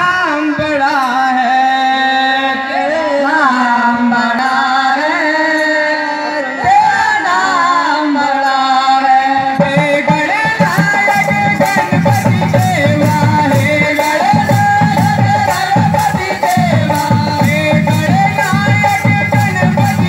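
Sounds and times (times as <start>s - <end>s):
percussion: 0.0s - 20.0s
backing music: 9.6s - 20.0s.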